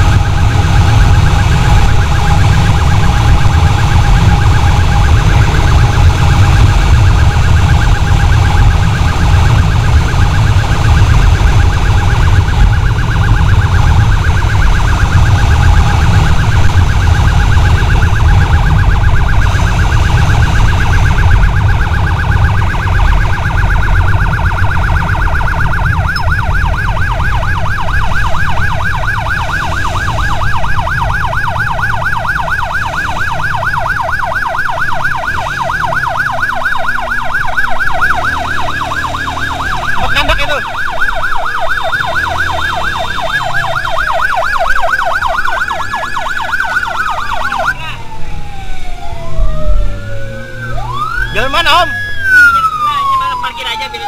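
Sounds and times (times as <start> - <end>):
emergency siren yelping: 0.0 - 54.0
wind and engine rumble: 0.0 - 54.0.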